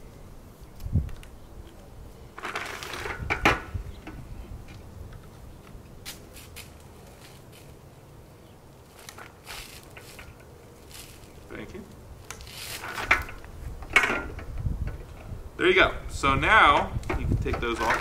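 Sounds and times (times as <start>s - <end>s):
rustling scrape: 6.0s - 7.8s, 8.8s - 11.5s, 12.4s - 13.8s.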